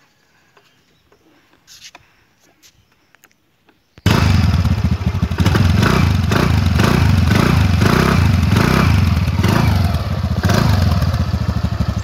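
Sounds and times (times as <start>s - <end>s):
scooter engine exhaust pulsing: 4.0s - 12.0s.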